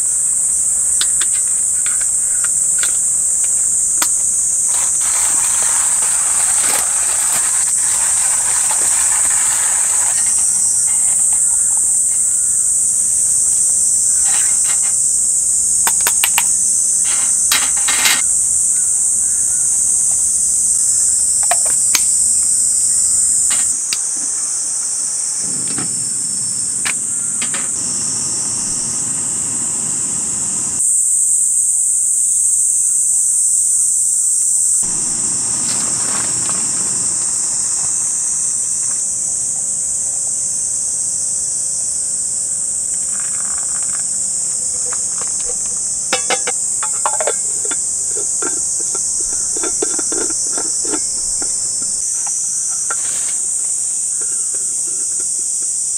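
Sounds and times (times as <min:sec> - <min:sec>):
insects chorus: 0:00.0 - 0:55.9
hand coffee grinder rasping: 0:01.0 - 0:12.4, 0:17.0 - 0:18.3, 0:44.9 - 0:51.9
sharp clicks and knocks: 0:15.8 - 0:18.3, 0:44.8 - 0:53.0.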